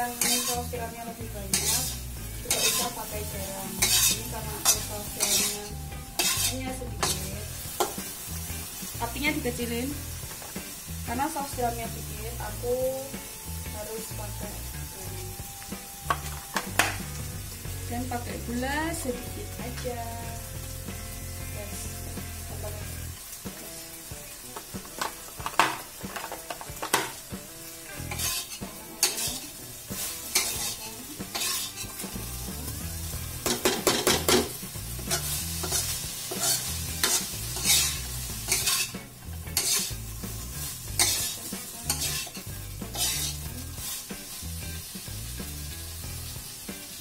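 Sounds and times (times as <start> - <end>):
metal spatula scraping a wok: 0.0 - 0.8, 1.4 - 8.3, 27.9 - 32.4, 33.4 - 44.4
food sizzling: 0.0 - 47.0.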